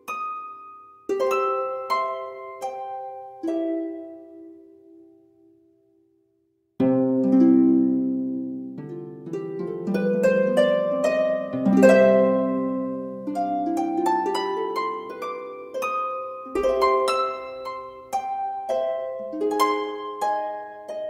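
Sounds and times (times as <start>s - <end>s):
gentle plucked melody: 0.0s - 5.8s, 6.8s - 21.0s.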